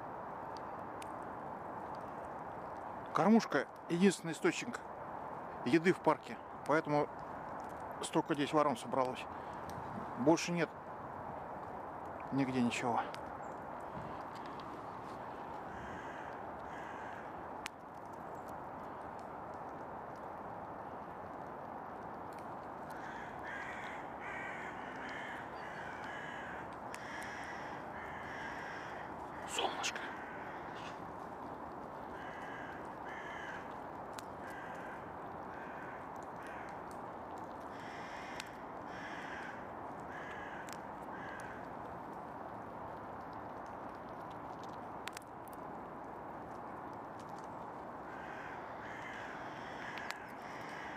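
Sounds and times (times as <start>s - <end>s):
steady background hiss: 0.0s - 50.9s
steady background noise: 0.0s - 50.9s
crows cawing: 15.3s - 17.4s, 22.8s - 41.8s, 48.0s - 50.9s.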